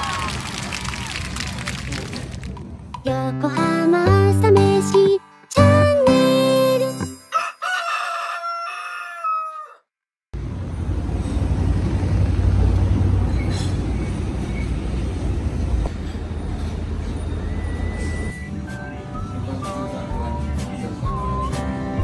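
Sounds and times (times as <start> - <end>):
low rumble of street noise: 0.0 - 3.3, 10.4 - 22.0
rooster crowing: 7.3 - 9.9.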